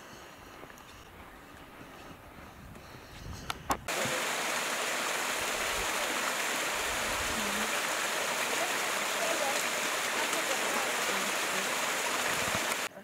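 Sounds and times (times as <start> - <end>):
waterfall rushing into pool: 3.9 - 12.9.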